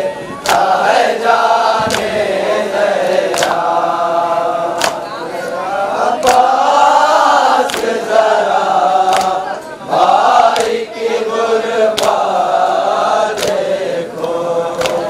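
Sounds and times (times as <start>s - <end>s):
men chanting into a microphone: 0.0s - 15.0s
chest slaps: 0.4s - 0.7s, 1.8s - 2.2s, 3.3s - 3.6s, 4.8s - 5.1s, 6.2s - 6.5s, 7.7s - 7.9s, 9.1s - 9.4s, 10.5s - 10.8s, 12.0s - 12.2s, 13.4s - 13.6s, 14.8s - 15.0s.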